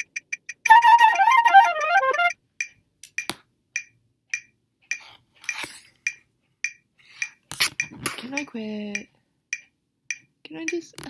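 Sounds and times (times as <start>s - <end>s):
metronome ticking: 0.0s - 11.0s
flute phrase: 0.7s - 2.3s.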